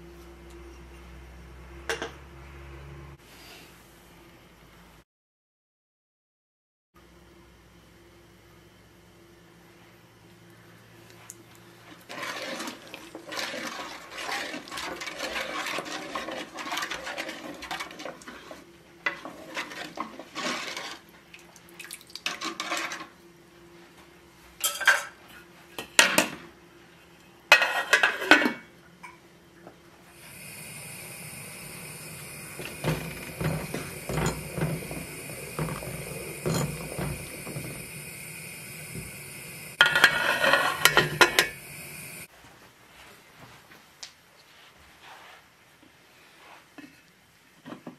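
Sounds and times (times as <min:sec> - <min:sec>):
spoon stirring in a metal pot: 0:11.9 - 0:21.1, 0:22.2 - 0:23.1, 0:30.3 - 0:42.1
steady hiss with high whine: 0:30.0 - 0:47.5.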